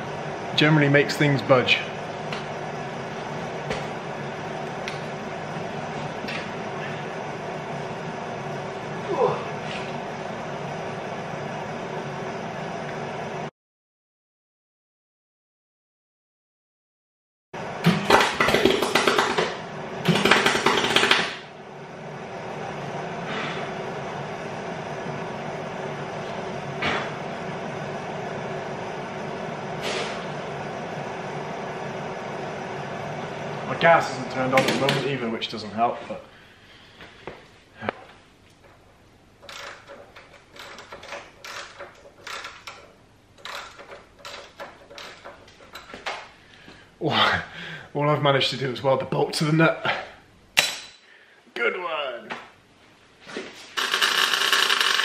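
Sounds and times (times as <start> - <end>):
steady hum: 0.0 - 13.5, 17.6 - 55.0
welder arc crackling: 53.7 - 55.0
ratchet wrench clicking: 53.8 - 55.0.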